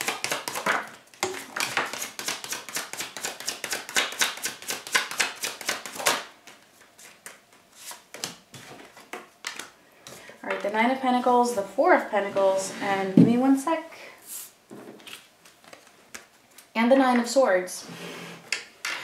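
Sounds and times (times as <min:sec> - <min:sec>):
cards being shuffled: 0:01.6 - 0:09.8.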